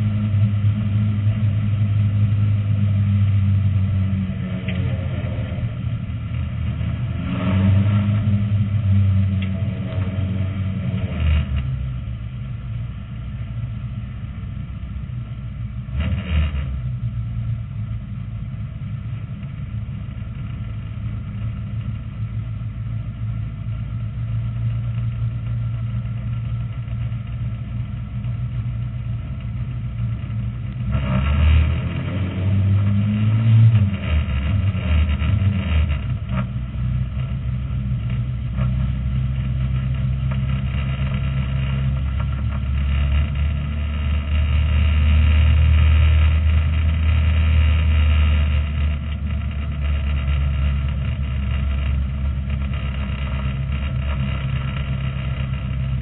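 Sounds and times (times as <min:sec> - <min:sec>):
race car engine from cockpit: 0:00.0 - 0:56.0
rush of noise: 0:24.4 - 0:56.0.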